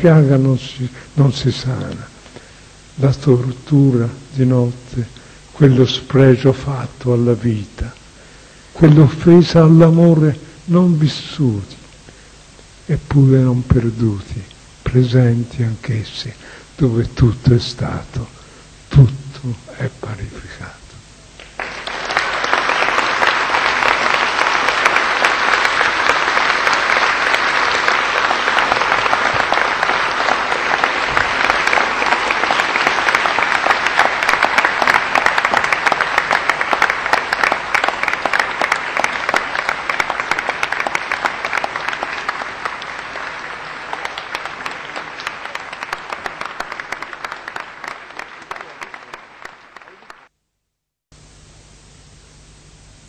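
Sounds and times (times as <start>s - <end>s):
audience applauding: 21.4s - 50.3s.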